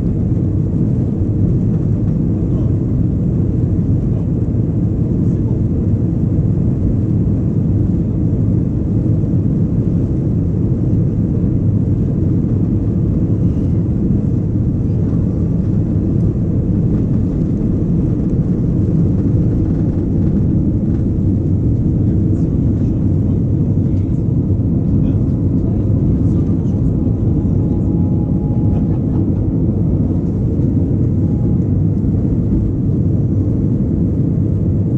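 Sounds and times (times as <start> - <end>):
jet engines at takeoff thrust: 0.0 - 34.9
takeoff roll rumble: 12.0 - 33.0.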